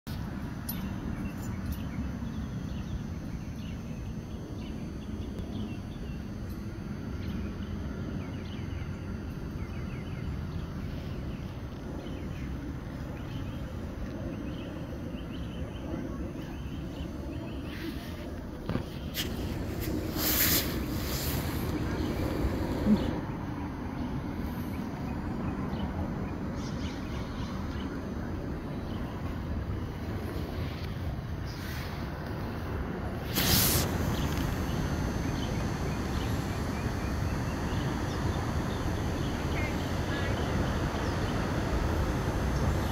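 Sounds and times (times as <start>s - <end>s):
steady low rumble: 0.1s - 42.9s
small birds chirping: 0.7s - 31.9s, 33.3s - 42.9s
wind buffeting microphone: 11.3s - 42.9s.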